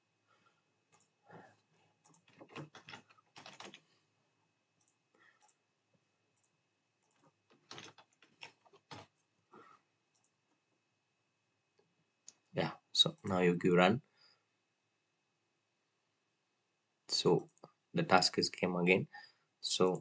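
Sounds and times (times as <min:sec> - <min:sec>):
keyboard typing: 0:02.0 - 0:03.9, 0:06.4 - 0:09.2.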